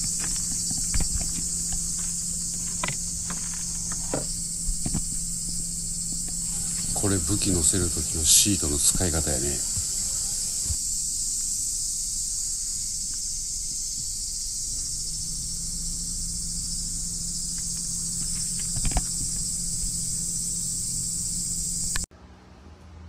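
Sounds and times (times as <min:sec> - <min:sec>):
faint low hum: 0:00.0 - 0:10.8
high-pitched insect chorus: 0:00.0 - 0:22.1.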